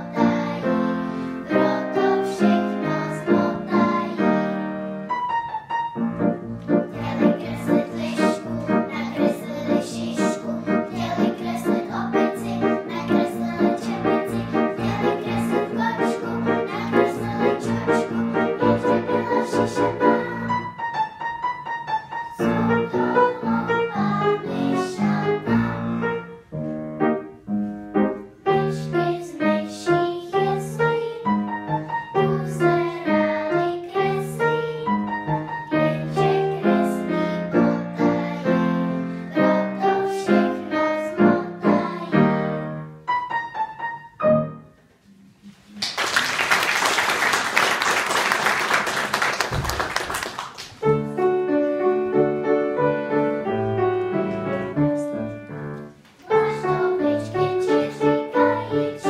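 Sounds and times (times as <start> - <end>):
piano piece: 0.0 - 59.0
audience applause: 45.8 - 50.8.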